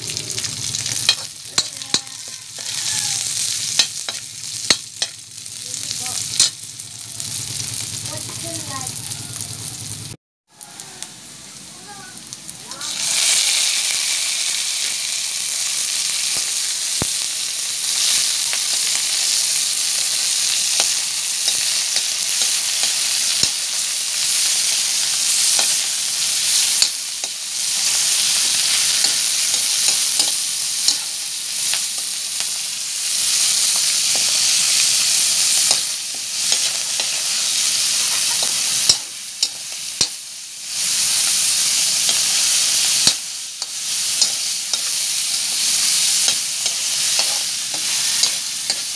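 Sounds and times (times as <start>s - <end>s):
meat sizzling in a wok: 0.0s - 48.9s
metal spatula scraping pan: 43.0s - 48.9s.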